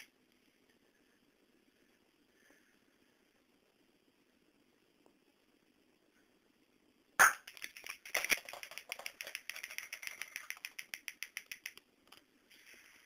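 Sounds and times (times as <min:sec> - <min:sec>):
rapid crackling: 0:07.5 - 0:11.8.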